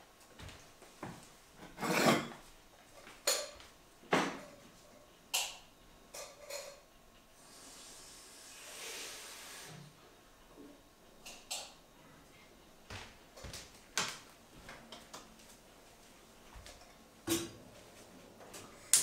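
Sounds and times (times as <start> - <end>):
dishes clinking: 1.7 - 2.4, 5.4 - 6.8
soft hiss: 7.2 - 10.7.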